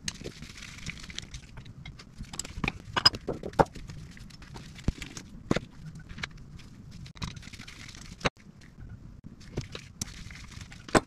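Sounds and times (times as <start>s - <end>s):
metal parts and tools clinking: 1.2s - 3.7s.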